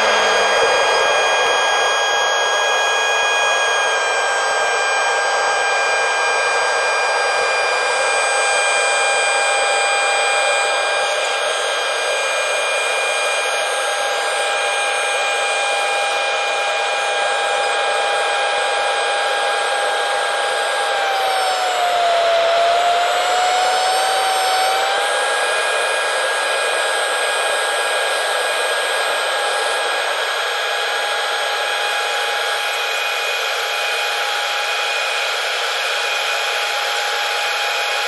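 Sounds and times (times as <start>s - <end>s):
high engine whine: 0.0s - 38.0s.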